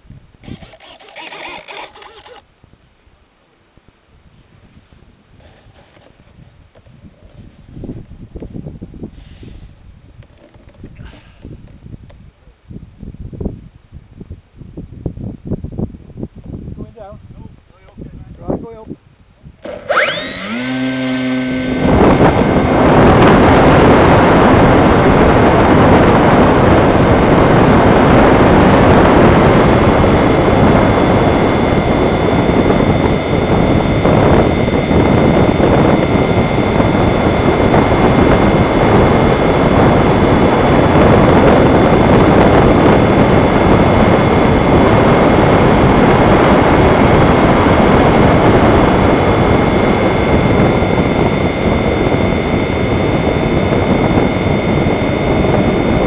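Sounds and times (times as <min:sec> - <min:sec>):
wind noise on microphone: 0:00.0 - 0:56.0
electric motor propeller whine: 0:00.4 - 0:02.5, 0:19.6 - 0:56.0.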